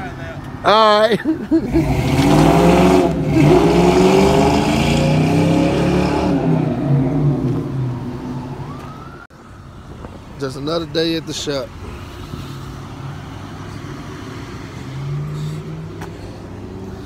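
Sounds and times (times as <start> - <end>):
car engine revving: 1.6 - 8.4.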